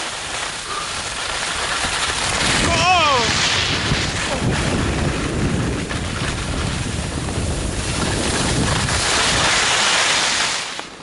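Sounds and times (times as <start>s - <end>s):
skis hissing over snow: 0.0s - 11.0s
wind buffeting microphone: 2.0s - 9.8s.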